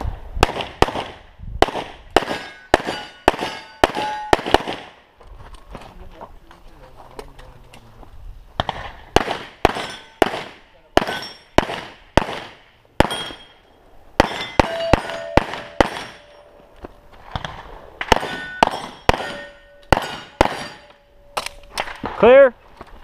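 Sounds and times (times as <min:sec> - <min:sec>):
pistol shots: 0:00.4 - 0:05.0, 0:08.6 - 0:13.6, 0:14.2 - 0:16.4, 0:17.3 - 0:22.2
steel targets ringing: 0:02.3 - 0:04.5, 0:09.8 - 0:10.2, 0:11.0 - 0:11.6, 0:13.0 - 0:16.7, 0:18.1 - 0:21.5.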